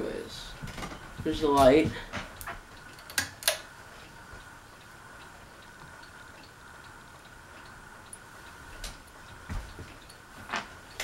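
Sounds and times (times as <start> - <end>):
faint high hum: 0.0 - 11.0
pull-chain light switch clicking: 2.8 - 3.7
light ticks: 4.3 - 11.0.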